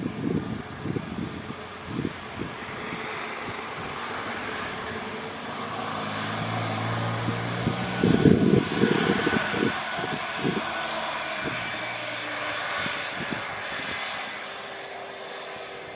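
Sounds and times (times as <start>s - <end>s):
jet engines hissing: 0.0s - 15.9s
low gusty rumbles: 0.0s - 15.9s.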